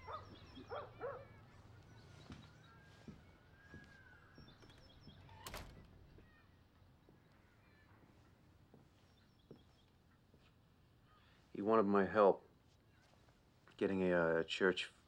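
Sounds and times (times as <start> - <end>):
dog barking faintly: 0.0 - 1.5.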